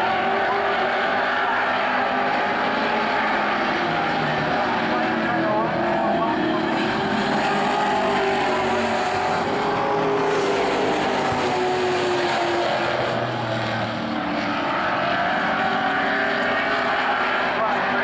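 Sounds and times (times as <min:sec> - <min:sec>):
racing car engines: 0:00.0 - 0:18.0.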